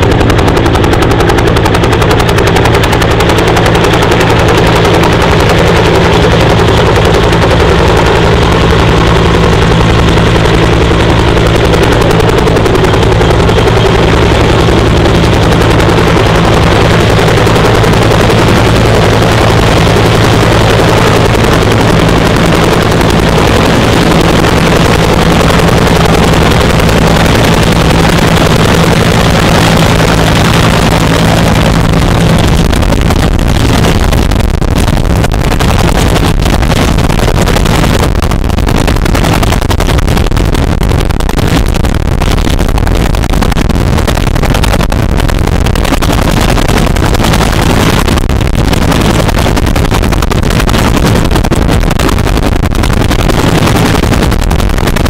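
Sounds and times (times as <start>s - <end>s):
helicopter engine drone: 0.0s - 55.0s
helicopter rotor slapping: 0.0s - 55.0s.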